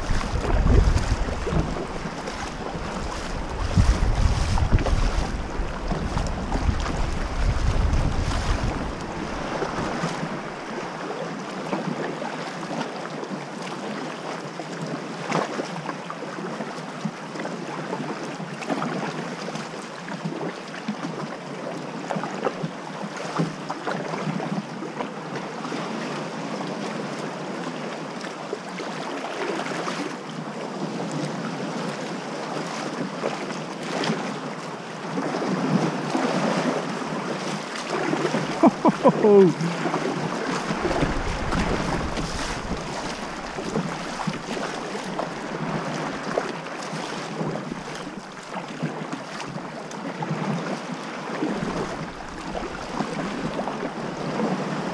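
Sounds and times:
wind rumble on microphone: 0.0s - 12.2s, 29.7s - 54.9s
paddle splashes: 0.0s - 54.9s
water lapping around kayak: 0.0s - 54.9s.

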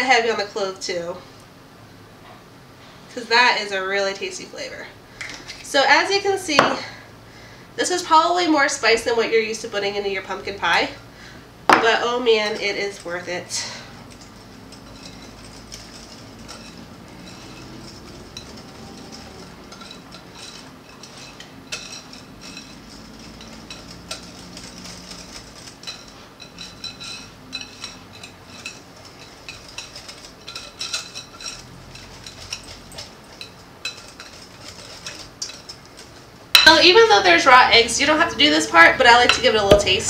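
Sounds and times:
whisk clinking against glass bowl: 14.1s - 35.8s.

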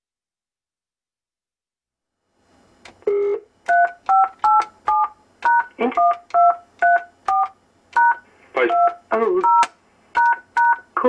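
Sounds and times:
telephone keypad beeps: 3.1s - 10.8s.

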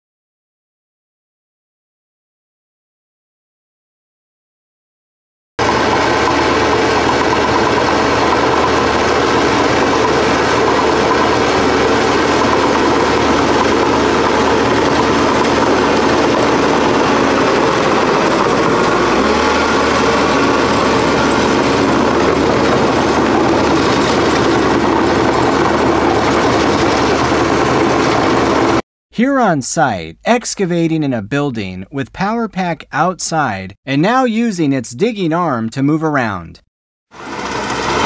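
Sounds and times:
small air-cooled engine running: 5.6s - 28.8s, 37.1s - 38.0s.

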